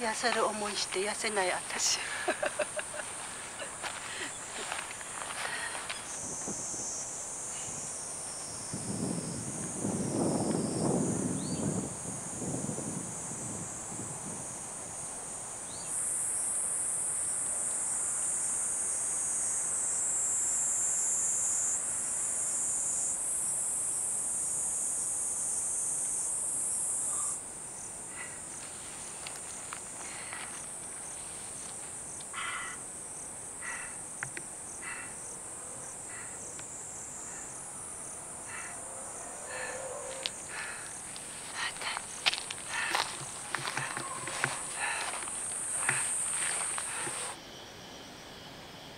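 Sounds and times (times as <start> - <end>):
faint ticks and rustles: 0.0 - 6.8, 28.0 - 32.6, 39.5 - 47.4
insect chorus drone: 0.0 - 48.9.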